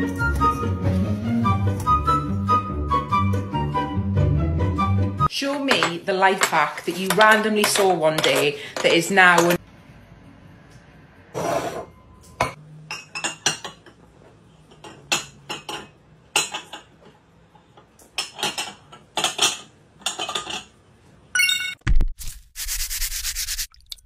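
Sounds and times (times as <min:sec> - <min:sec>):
porcelain cups clinking: 0:12.4 - 0:14.0, 0:14.6 - 0:17.0.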